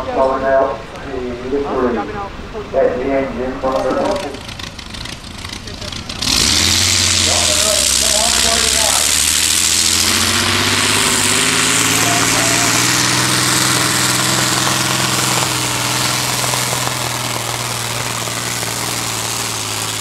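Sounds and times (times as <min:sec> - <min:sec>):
tractor engine droning: 0:00.0 - 0:20.0.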